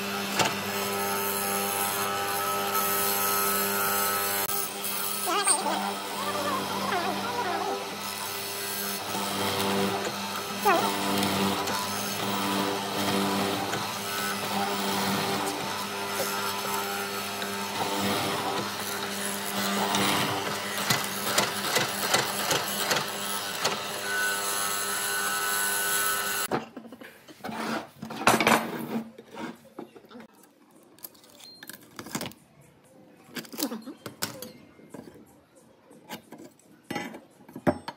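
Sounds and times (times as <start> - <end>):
mortising machine motor hum: 0.0 - 26.5.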